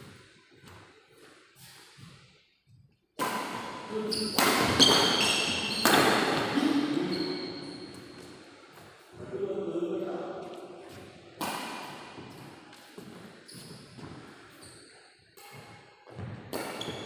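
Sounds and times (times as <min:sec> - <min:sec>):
racket striking shuttlecock: 0:03.2 - 0:06.6, 0:11.4 - 0:12.9.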